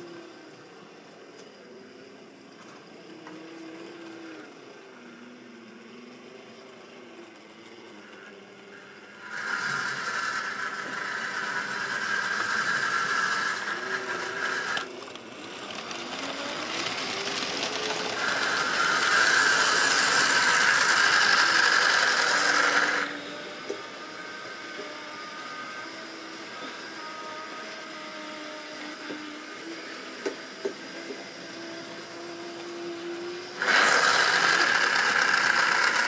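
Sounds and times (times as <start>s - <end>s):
model train motor whining: 0.0s - 36.0s
wheels rattling over track: 9.3s - 23.1s.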